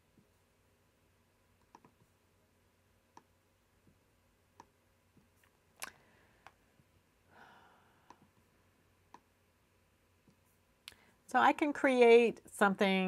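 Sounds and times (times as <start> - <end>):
computer mouse clicks: 1.6 - 2.0, 3.1 - 3.3
soft rustle: 10.2 - 11.3.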